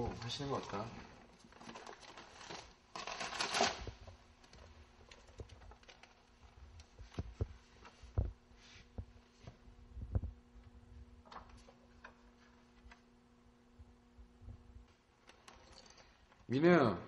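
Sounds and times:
paper sheets rustling: 0.0s - 9.5s
faint steady hum: 0.0s - 17.0s.

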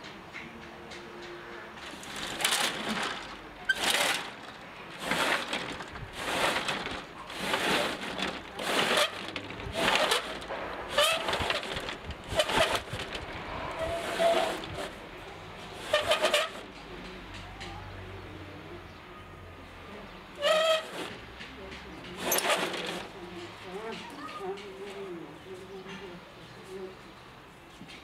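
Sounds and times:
roller shutter slats rattling: 1.7s - 16.9s, 20.4s - 24.6s.

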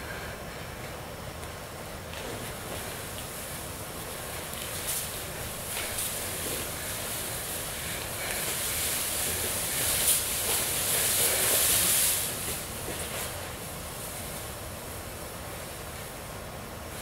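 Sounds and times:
steady hiss: 0.0s - 17.0s
plastic wings rustling and swishing: 4.1s - 14.2s.

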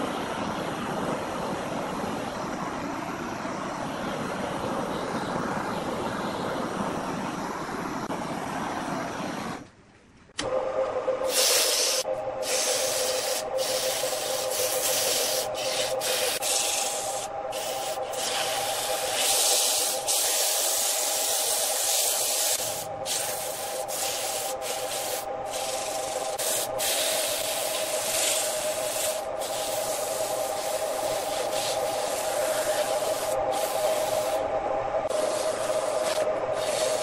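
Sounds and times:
sandpaper hissing on spinning wood: 11.3s - 34.4s, 35.1s - 37.0s
wood lathe humming: 20.8s - 37.0s.

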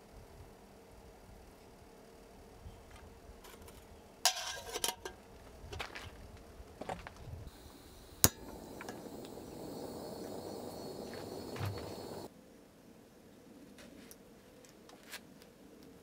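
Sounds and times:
stove burning with hiss: 0.0s - 12.3s
metal pots clanking: 4.3s - 5.2s
camping stove igniter click: 8.0s - 12.3s.

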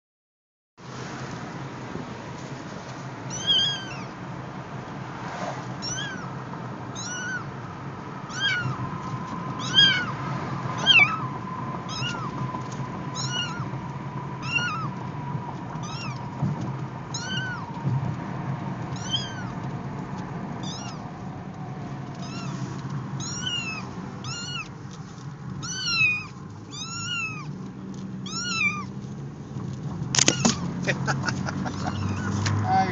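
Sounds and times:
kitten meowing: 3.3s - 4.2s, 5.8s - 6.3s, 6.9s - 7.5s, 8.3s - 8.8s, 9.6s - 10.1s, 10.8s - 11.3s, 11.9s - 12.3s, 13.2s - 13.7s, 14.4s - 14.9s, 15.8s - 16.2s, 17.1s - 17.7s, 18.9s - 19.6s, 20.6s - 21.0s, 22.2s - 22.6s, 23.2s - 24.7s, 25.6s - 27.5s, 28.2s - 28.9s, 31.7s - 32.4s.

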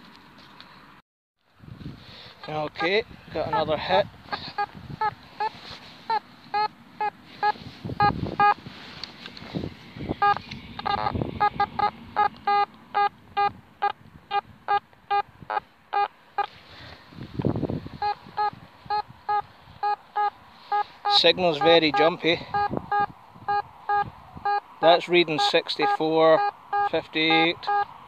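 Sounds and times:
low rumbles of wind: 0.0s - 28.0s
metal detector beeping: 2.8s - 5.5s, 6.1s - 8.6s, 10.2s - 15.2s, 18.0s - 27.9s.

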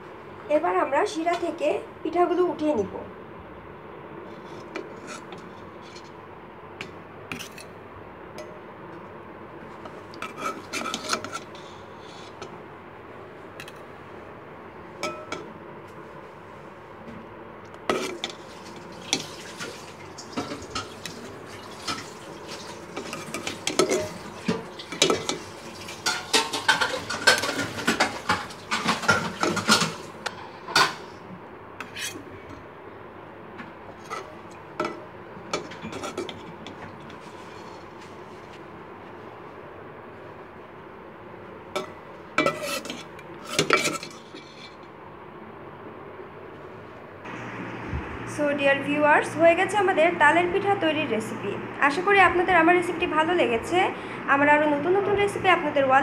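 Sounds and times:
spatula scraping a pan: 4.3s - 6.2s, 9.8s - 12.5s, 17.9s - 31.1s, 31.8s - 32.3s, 34.0s - 38.6s, 42.4s - 44.8s.

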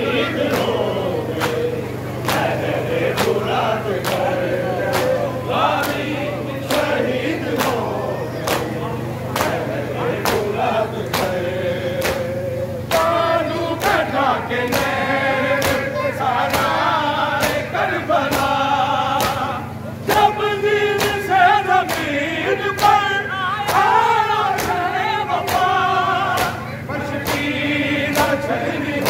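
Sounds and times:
men chanting a lament: 0.0s - 29.0s
chest-beating slaps: 0.5s - 7.0s, 9.4s - 11.4s, 24.6s - 24.8s, 25.5s - 25.7s, 27.2s - 28.4s.

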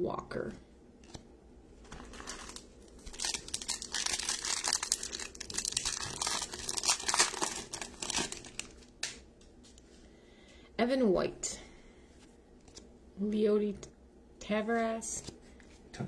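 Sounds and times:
foil wrapper crinkling and tearing: 1.8s - 9.2s.

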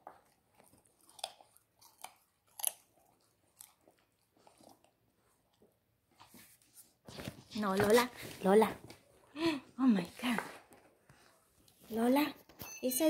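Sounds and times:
dog crunching carrot: 0.0s - 5.6s.

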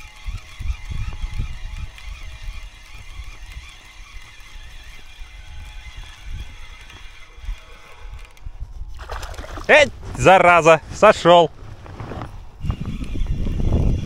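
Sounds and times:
fishing reel gears whirring: 0.0s - 9.8s, 12.6s - 14.0s.

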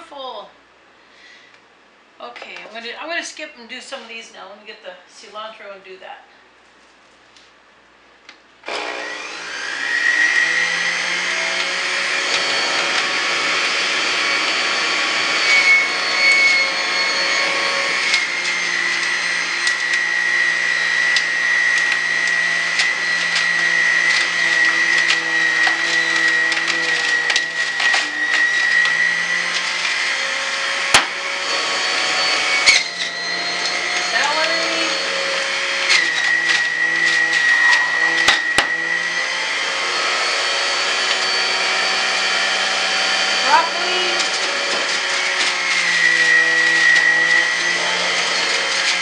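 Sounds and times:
juicer motor whining: 8.6s - 49.0s
produce being shredded: 10.2s - 41.5s, 43.4s - 49.0s.

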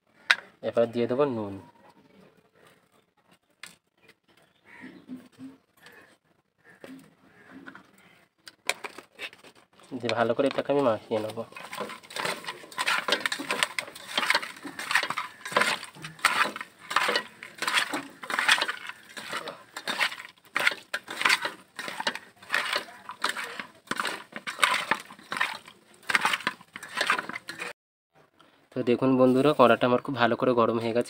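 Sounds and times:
fish mixed by hand in metal bowl: 8.6s - 27.7s.

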